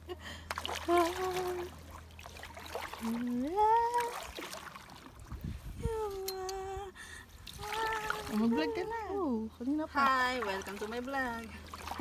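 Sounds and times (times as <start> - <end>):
paddle splashing in water: 0.3 - 5.8, 7.4 - 8.7, 9.9 - 12.0.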